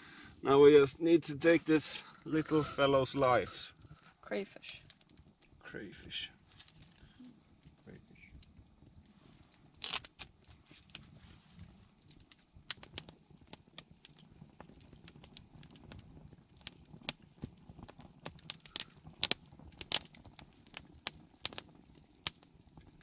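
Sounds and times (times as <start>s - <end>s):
faint low background noise: 0.0s - 12.7s.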